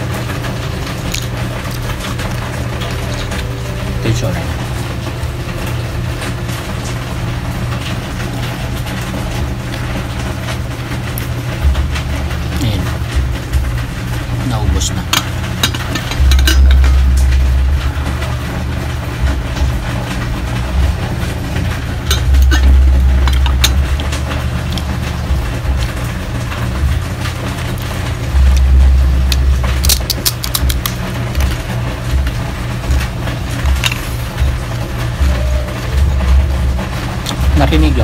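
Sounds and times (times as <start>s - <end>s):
heavy rain falling: 0.0s - 38.0s
crunching of crispy food: 15.3s - 34.4s.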